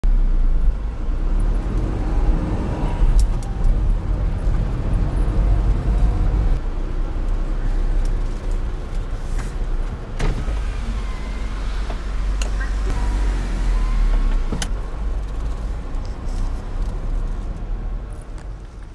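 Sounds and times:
car engine and road noise: 0.0 - 18.9.

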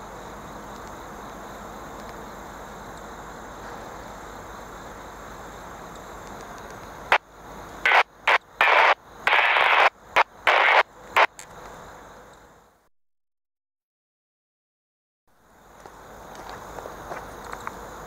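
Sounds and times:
radio static hiss: 0.0 - 12.9
loud static bursts: 6.9 - 11.4.

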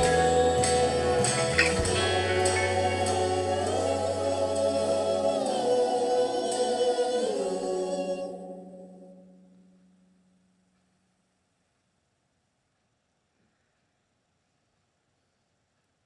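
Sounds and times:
song with choir-like singing: 0.0 - 9.4.

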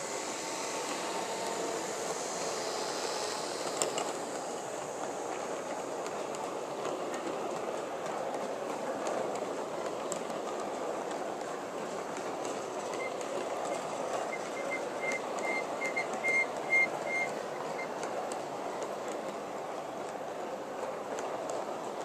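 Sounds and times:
model train wheels rumbling: 0.0 - 22.0
rail joint clicks: 3.6 - 22.0.

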